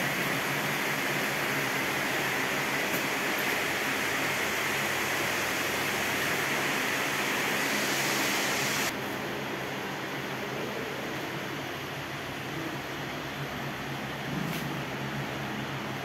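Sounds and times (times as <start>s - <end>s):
steady rushing hiss: 0.0s - 9.4s.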